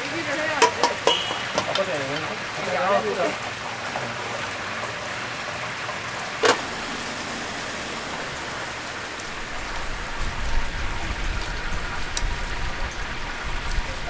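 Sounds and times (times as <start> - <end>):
low rumble: 6.2 - 13.7.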